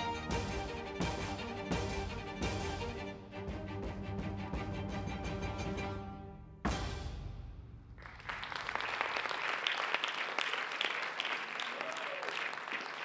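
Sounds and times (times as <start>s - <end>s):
audience applause: 8.0s - 13.0s.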